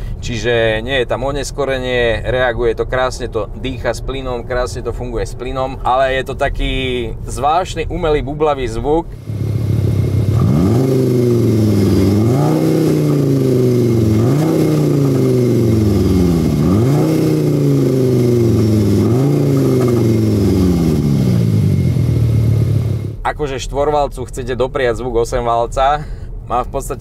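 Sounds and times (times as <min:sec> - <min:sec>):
car engine revving: 0:09.1 - 0:23.2.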